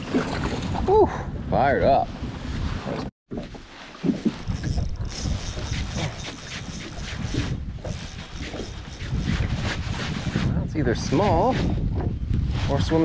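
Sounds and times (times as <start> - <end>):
wind on microphone: 0.0 - 3.1, 4.1 - 13.0
water slapping a boat: 2.7 - 12.2
fishing reel whirring and ticking: 4.4 - 9.6.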